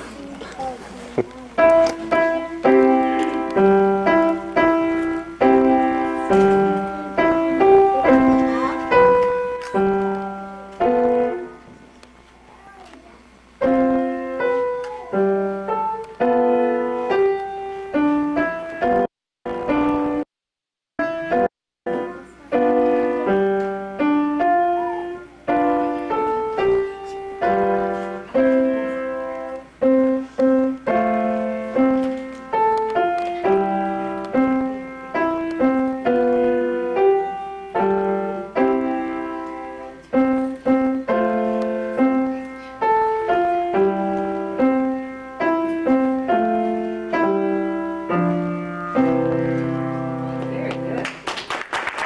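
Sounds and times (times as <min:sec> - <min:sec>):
upright piano playing: 0:00.0 - 0:11.9, 0:13.6 - 0:20.3, 0:21.0 - 0:51.0.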